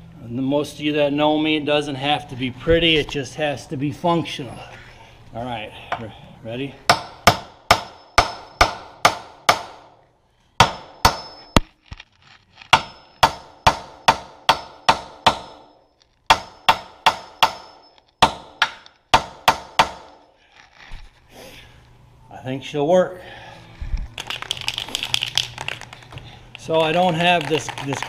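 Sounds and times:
hammer striking metal: 6.9 - 9.9, 10.6 - 11.7, 12.7 - 20.3.

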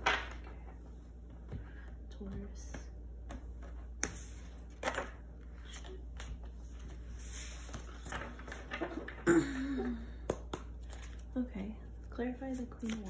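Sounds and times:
low steady hum: 0.0 - 13.0
cards being shuffled: 10.4 - 11.4, 12.4 - 13.0.

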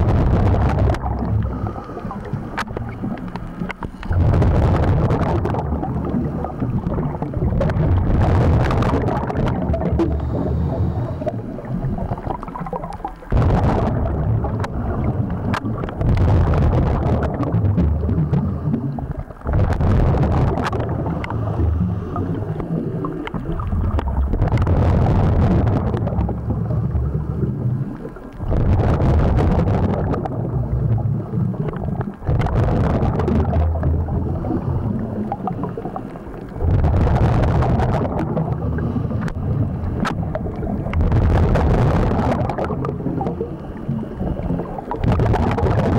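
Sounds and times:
exhaled bubbles rumbling: 0.0 - 45.9
diver breathing through regulator: 1.2 - 2.6, 10.0 - 12.3, 38.5 - 40.0.

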